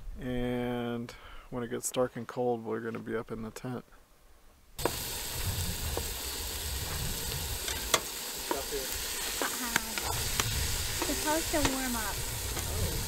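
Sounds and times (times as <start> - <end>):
meat sizzling in a pot: 4.8 - 13.0.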